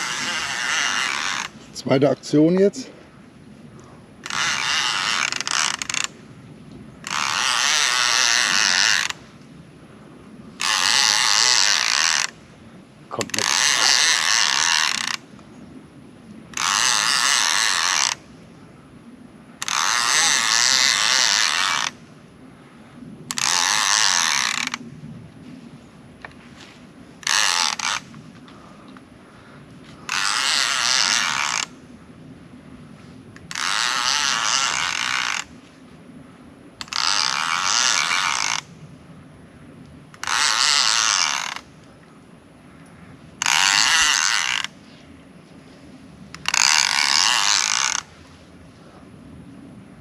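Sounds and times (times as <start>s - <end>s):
fishing reel gears whirring: 0.0s - 1.6s, 4.2s - 6.2s, 7.0s - 9.2s, 10.6s - 12.4s, 13.3s - 15.2s, 16.5s - 18.2s, 19.6s - 22.0s, 23.3s - 24.8s, 27.2s - 28.2s, 30.0s - 31.8s, 33.5s - 35.5s, 36.8s - 38.7s, 40.2s - 41.7s, 43.4s - 44.8s, 46.4s - 48.1s.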